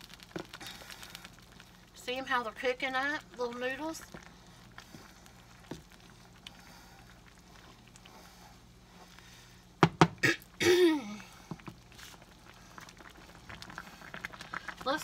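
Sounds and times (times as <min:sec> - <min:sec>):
person coughing: 0:10.2 - 0:11.2
throat-clearing: 0:10.2 - 0:11.2.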